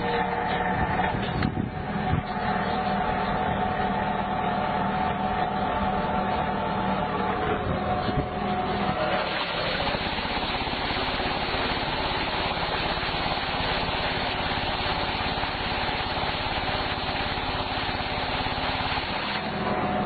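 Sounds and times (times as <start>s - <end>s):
olives and leaves showering down: 9.2s - 19.4s.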